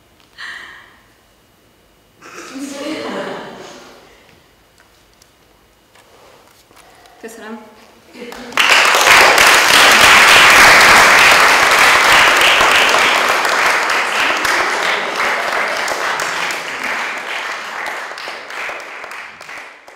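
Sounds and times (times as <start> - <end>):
audience applauding: 8.2 - 19.9.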